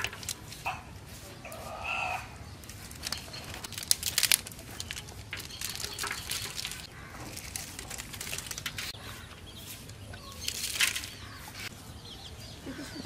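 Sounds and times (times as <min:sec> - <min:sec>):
birds chirping: 0:00.0 - 0:13.0
spices pattering into a metal pot: 0:02.9 - 0:09.0.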